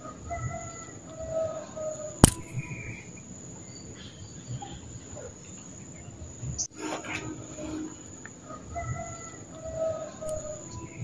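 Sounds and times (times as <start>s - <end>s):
faint bird calls: 0.0s - 11.0s
sharp click: 2.2s - 2.8s, 10.3s - 10.5s.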